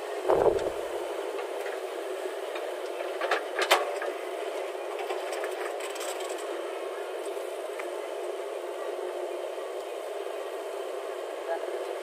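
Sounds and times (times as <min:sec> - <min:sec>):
backhoe loader engine running: 0:00.1 - 0:01.1
sharp knocks: 0:00.3 - 0:00.8.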